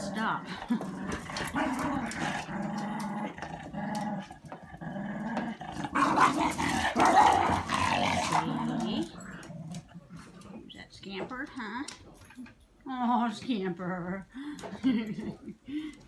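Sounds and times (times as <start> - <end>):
puppies growling in play: 0.0 - 10.7.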